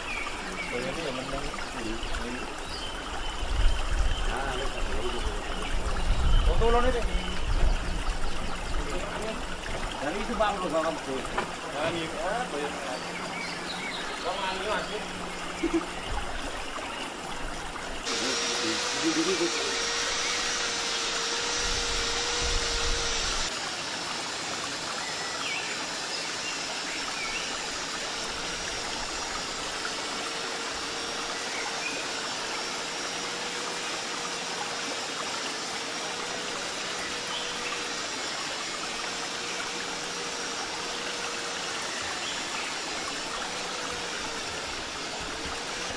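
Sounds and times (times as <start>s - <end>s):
faint wavering hum: 11.0s - 45.9s.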